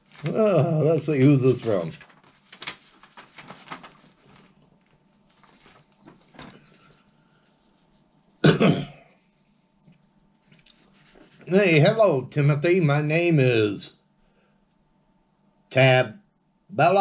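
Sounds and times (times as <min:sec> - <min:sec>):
paper rustling: 0:00.0 - 0:08.0, 0:10.4 - 0:11.9
man coughing: 0:08.4 - 0:09.1.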